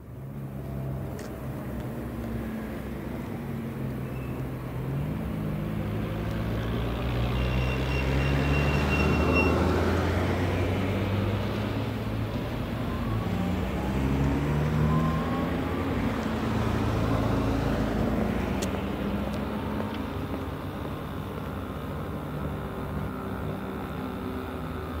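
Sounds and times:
traffic engine hum: 0.0s - 25.0s
vehicle passing: 5.4s - 24.7s.

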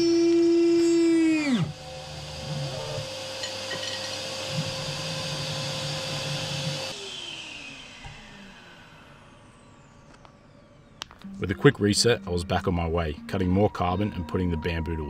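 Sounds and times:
router spindle whining and stalling: 0.0s - 11.4s.

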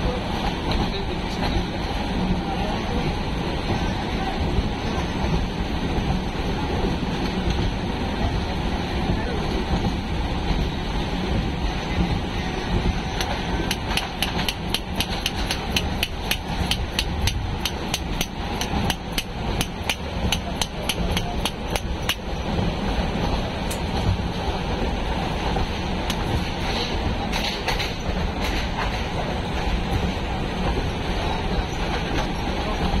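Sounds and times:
train carriage rumble: 0.0s - 33.0s.

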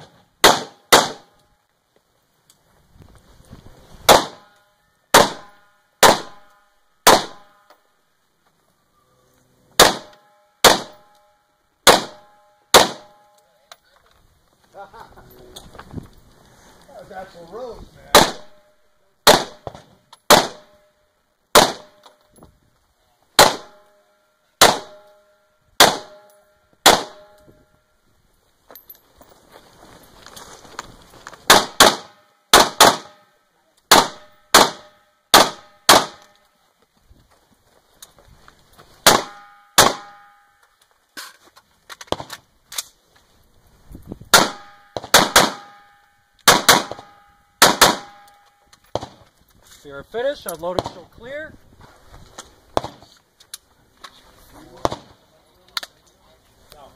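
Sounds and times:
rifle shots: 0.4s - 1.3s, 4.1s - 4.5s, 5.1s - 7.5s, 9.8s - 11.1s, 11.8s - 13.2s, 18.1s - 18.6s, 19.2s - 20.8s, 21.5s - 22.0s, 23.4s - 23.8s, 24.6s - 25.1s, 25.8s - 27.4s, 31.5s - 33.2s, 33.9s - 36.3s, 39.0s - 40.2s, 44.3s - 45.8s, 46.4s - 48.3s
faint movement noise: 1.5s - 5.1s, 13.3s - 18.1s, 27.4s - 31.5s, 48.4s - 56.9s.

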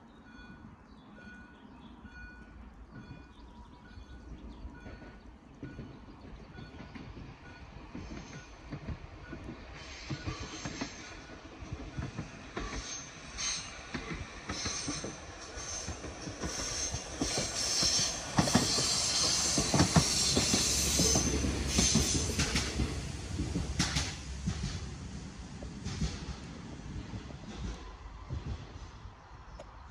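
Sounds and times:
train wheels clicking over rail joints: 2.9s - 29.8s
train wheels squealing: 6.5s - 22.8s.

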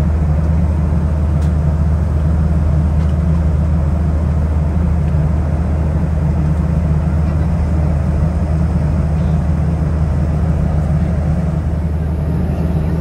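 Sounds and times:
airliner cabin drone: 0.0s - 13.0s.

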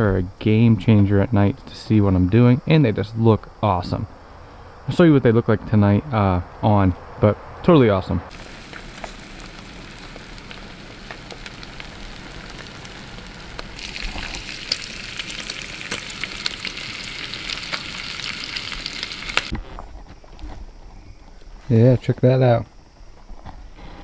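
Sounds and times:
food sizzling in frying pan: 8.3s - 19.5s.

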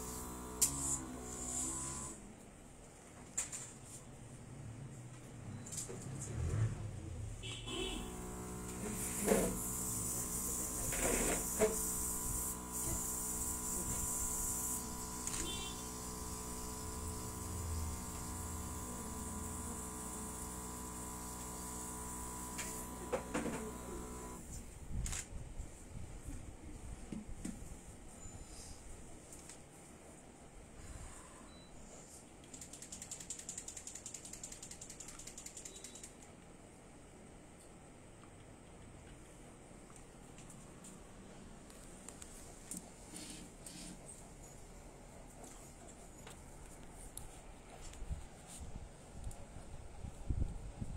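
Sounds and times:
airbrush hissing: 0.0s - 2.1s, 8.0s - 24.4s
steady hum: 7.9s - 24.5s
rapid ratchet-like clicks: 32.4s - 36.4s.

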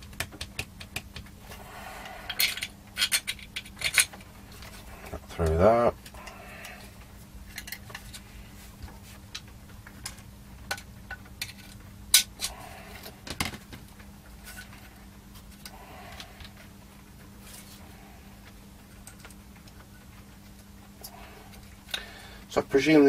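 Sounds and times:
small metal parts clinking: 2.3s - 4.2s, 7.5s - 8.2s.

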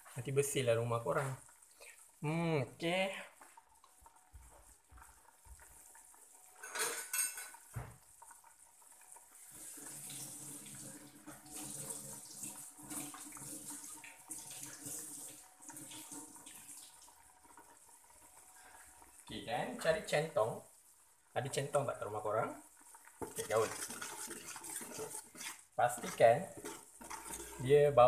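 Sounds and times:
pots and utensils clattering: 6.5s - 7.8s, 23.1s - 27.6s.

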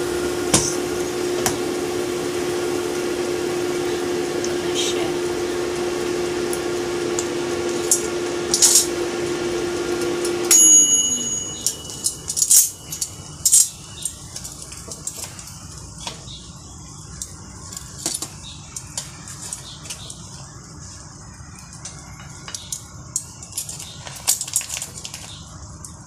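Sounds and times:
air fryer fan humming: 0.0s - 26.0s
metal tongs clinking: 7.2s - 9.0s, 10.0s - 15.4s.

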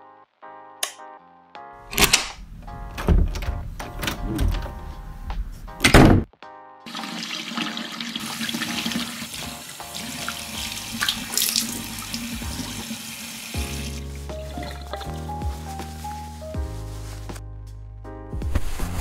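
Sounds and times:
water running from tap into sink: 6.9s - 15.2s
water splashing: 6.9s - 15.4s.

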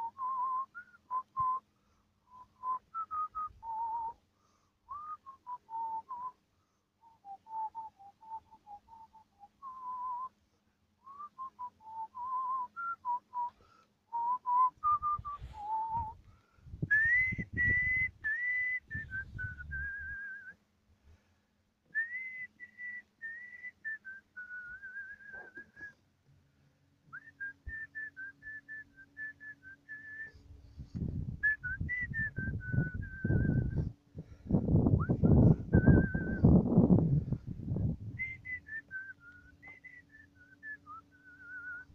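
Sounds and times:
person whistling a slow tune: 0.0s - 1.6s, 2.3s - 4.2s, 4.9s - 6.4s, 7.0s - 10.3s, 11.0s - 16.2s, 16.8s - 20.6s, 21.9s - 26.0s, 27.1s - 30.4s, 31.4s - 36.6s, 37.7s - 41.9s
dull low rumbles: 14.9s - 18.2s, 18.9s - 20.3s, 30.5s - 38.6s.

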